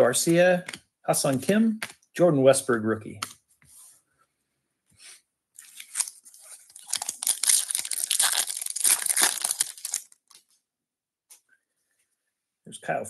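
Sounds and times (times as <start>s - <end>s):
foil wrapper tearing and crinkling: 5.6s - 10.4s.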